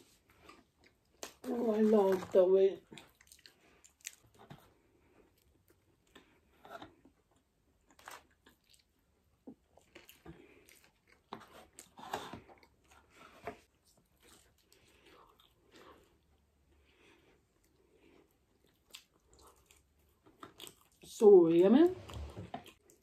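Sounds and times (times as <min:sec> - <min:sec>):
person chewing food: 0:00.0 - 0:01.5, 0:02.8 - 0:21.1, 0:22.1 - 0:23.0.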